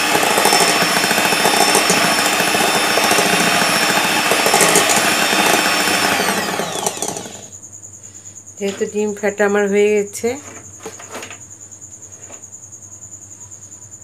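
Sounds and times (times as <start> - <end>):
electric hand mixer whisking: 0.0 - 7.5.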